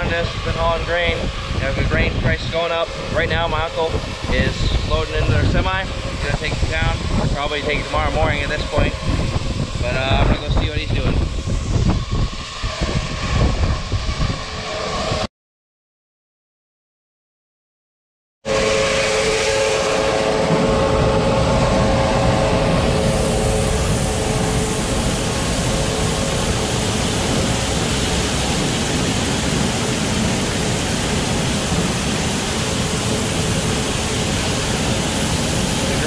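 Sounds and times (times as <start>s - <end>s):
auger and grain rushing: 0.0s - 11.6s.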